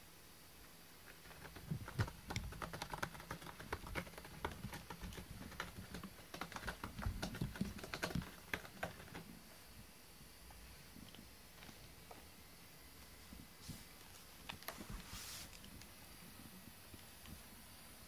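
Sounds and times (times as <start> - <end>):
cat scratching cardboard: 1.1 - 9.3.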